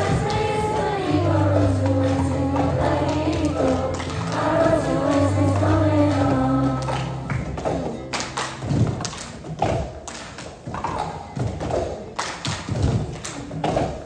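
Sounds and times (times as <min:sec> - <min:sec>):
children tapping cups on floor: 0:00.0 - 0:14.0.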